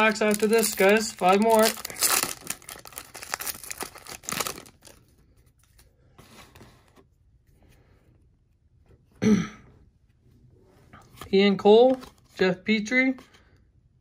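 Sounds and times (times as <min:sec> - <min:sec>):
foil wrapper tearing and crinkling: 0:00.0 - 0:05.0
cards rustling: 0:00.0 - 0:07.0, 0:11.0 - 0:12.4.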